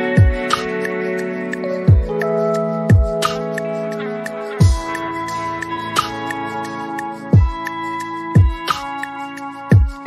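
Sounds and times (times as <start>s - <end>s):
soft instrumental music: 0.0s - 10.0s.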